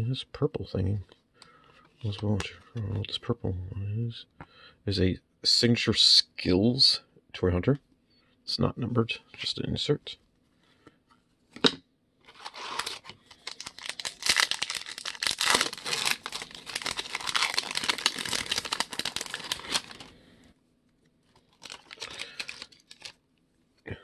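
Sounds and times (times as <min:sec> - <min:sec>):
foil wrapper tearing and crinkling: 0:12.3 - 0:20.2, 0:21.4 - 0:23.2.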